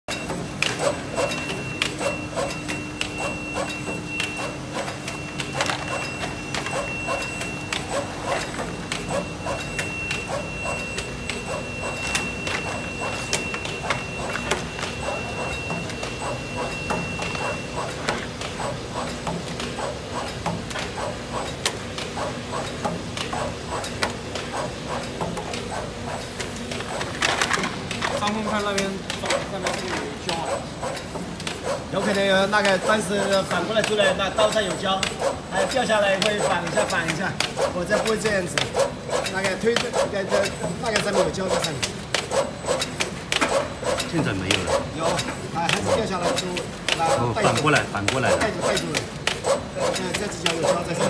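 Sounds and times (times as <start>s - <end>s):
mechanical clicks and clacks: 0.1s - 51.0s
taping machine humming and whining: 0.1s - 51.0s.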